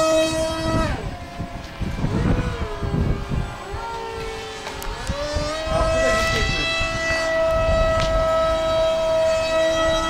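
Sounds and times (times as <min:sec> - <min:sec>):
model airplane motor whining: 0:00.0 - 0:10.0
wind rumbling on microphone: 0:00.0 - 0:10.0.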